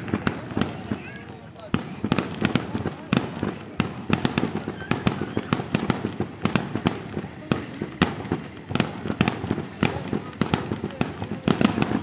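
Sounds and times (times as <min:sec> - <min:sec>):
fireworks bangs: 0:00.0 - 0:12.0.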